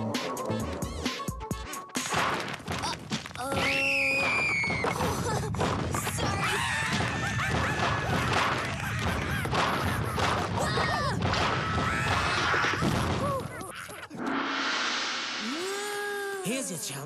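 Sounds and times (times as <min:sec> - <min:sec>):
cartoon crashes and whacks: 0:02.0 - 0:04.9.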